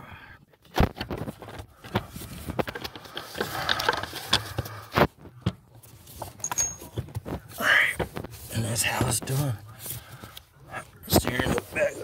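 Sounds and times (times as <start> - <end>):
clicks and knocks of parts: 0.6 - 5.1.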